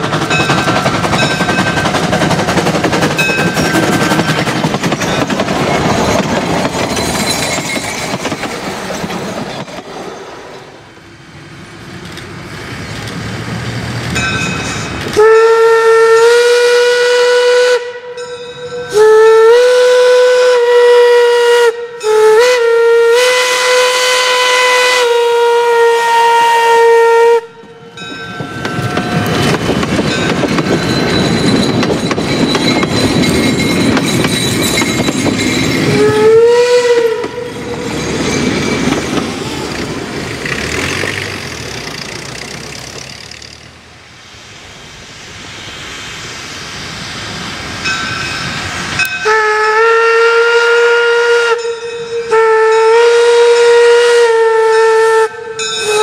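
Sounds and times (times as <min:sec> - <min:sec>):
train wheel clatter: 0:00.0 - 0:10.6, 0:27.6 - 0:43.8
steam locomotive exhaust: 0:12.6 - 0:56.0
steam whistle blasts: 0:15.1 - 0:28.0, 0:35.9 - 0:37.7, 0:49.0 - 0:56.0.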